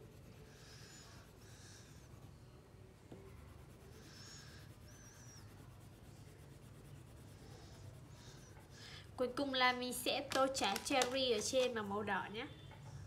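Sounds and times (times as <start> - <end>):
crayon scribbling on paper: 0.0 - 9.5.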